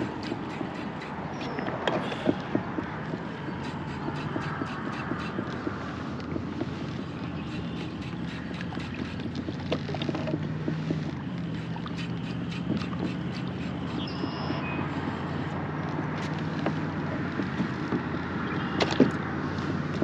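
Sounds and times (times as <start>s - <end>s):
small ticks: 0.0s - 20.0s
steady low hum: 0.0s - 20.0s
water lapping at hull: 0.0s - 20.0s
wind buffeting microphone: 0.0s - 20.0s.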